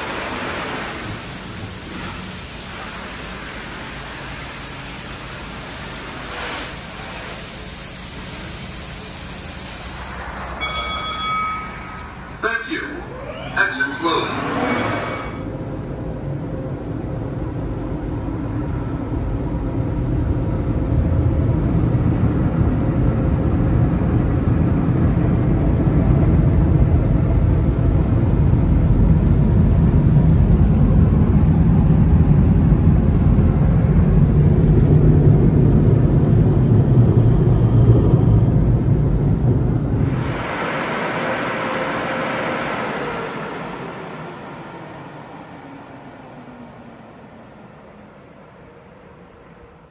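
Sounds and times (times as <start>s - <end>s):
air dryer blowers rushing: 0.0s - 15.6s, 39.9s - 46.5s
deep rumble: 10.0s - 43.8s.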